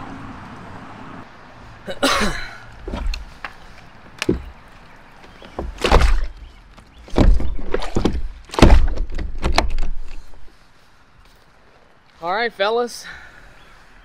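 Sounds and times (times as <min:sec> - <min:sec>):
hard plastic knocks and clunks: 0:04.2 - 0:04.6, 0:05.2 - 0:10.2.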